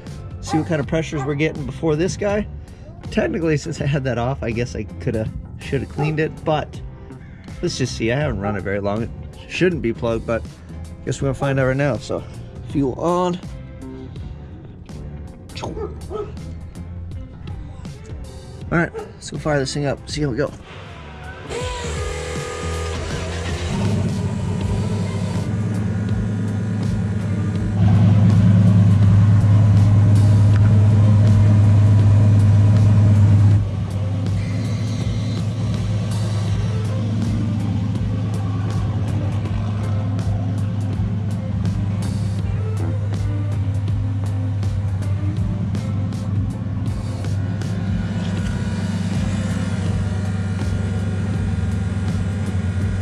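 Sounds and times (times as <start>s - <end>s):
car engine idling: 20.6s - 53.0s.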